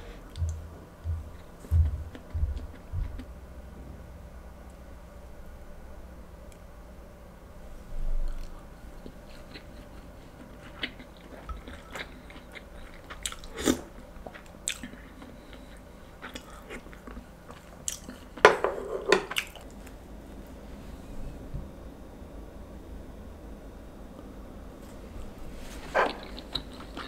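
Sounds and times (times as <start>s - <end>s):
chewing crunchy food: 8.3s - 18.4s, 25.8s - 27.0s.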